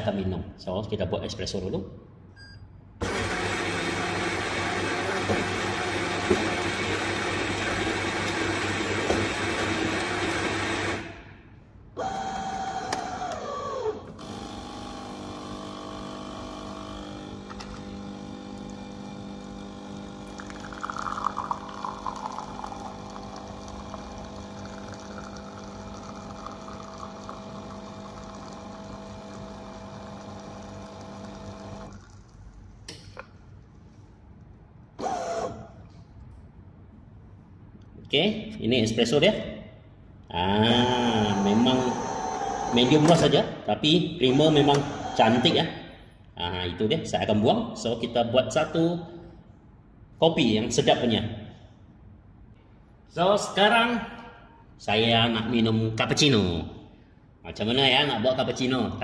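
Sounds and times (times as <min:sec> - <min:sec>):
pump humming: 0:12.0 - 0:32.3, 0:44.2 - 0:45.6
coffee grinder grinding beans: 0:14.3 - 0:32.3, 0:40.8 - 0:43.0
espresso pouring: 0:14.9 - 0:32.5
motor whirring: 0:40.8 - 0:43.2, 0:44.3 - 0:45.6.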